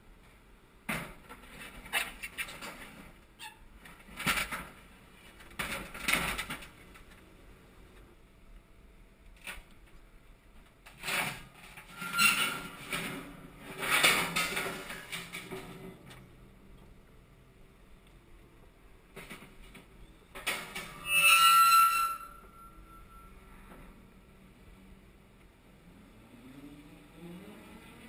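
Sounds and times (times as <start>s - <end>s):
steel piles scraping and squealing: 11.6s - 15.1s, 20.6s - 23.8s.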